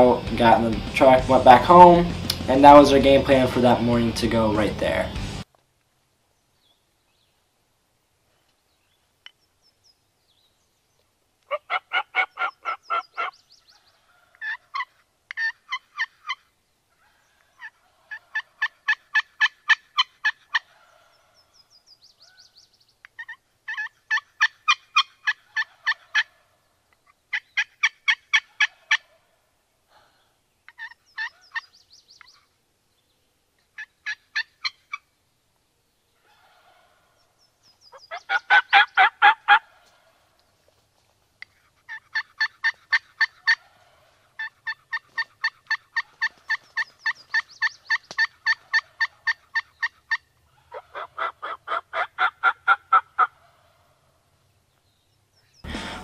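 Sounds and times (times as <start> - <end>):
turkey yelps: 11.5 - 21.4, 23.2 - 26.6, 27.3 - 29.4, 30.7 - 32.4, 33.8 - 35.0, 36.2 - 37.2, 37.9 - 40.3, 41.4 - 54.0
turkey gobble: 11.5 - 21.5, 23.1 - 29.4, 30.7 - 32.4, 33.7 - 35.0, 36.2 - 37.2, 37.9 - 40.3, 41.4 - 54.1.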